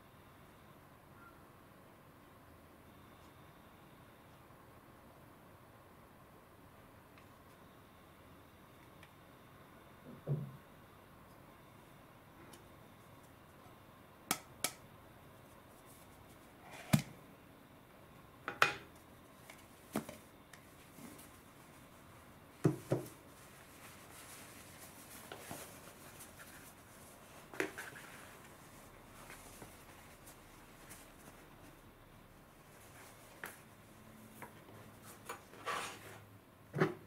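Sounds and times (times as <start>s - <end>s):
cloth towel rustling: 22.8s - 31.8s.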